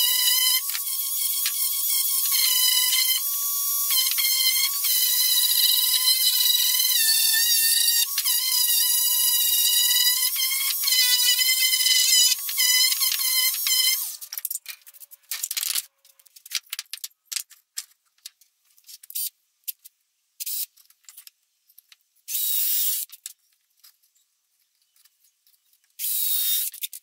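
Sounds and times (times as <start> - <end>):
palm sander whine: 0.0 - 14.2
sander clicks: 9.4 - 15.9.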